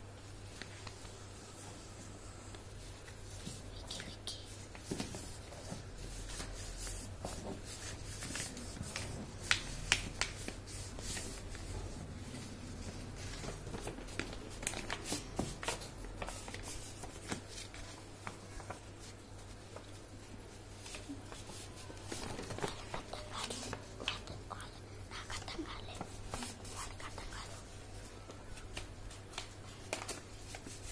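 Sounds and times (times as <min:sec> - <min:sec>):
paper rustling and crinkling: 0:02.8 - 0:30.9.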